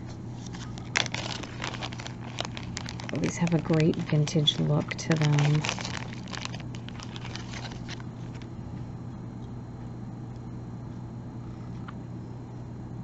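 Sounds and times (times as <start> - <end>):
steady low hum: 0.0 - 13.0
plastic zip bag crinkling: 0.4 - 8.5.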